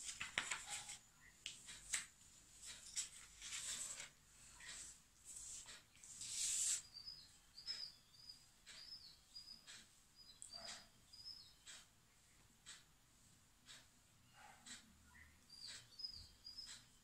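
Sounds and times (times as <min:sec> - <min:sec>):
paper sheet rustling: 0:00.0 - 0:01.0, 0:01.8 - 0:04.1
crayon rubbing on paper: 0:05.3 - 0:06.9
bird chirping: 0:06.5 - 0:11.9, 0:14.2 - 0:17.0.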